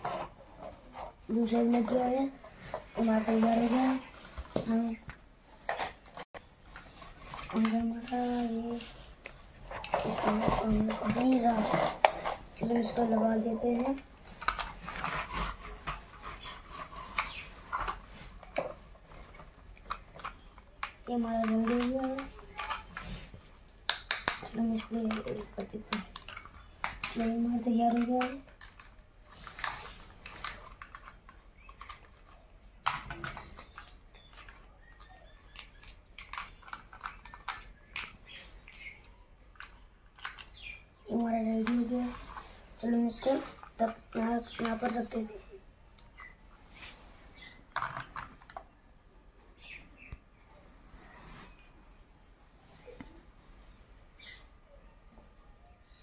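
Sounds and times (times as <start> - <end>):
plastic parts rubbing: 0.0 - 48.8
plastic toy parts clicking: 9.7 - 23.2, 23.8 - 42.4, 47.7 - 48.7.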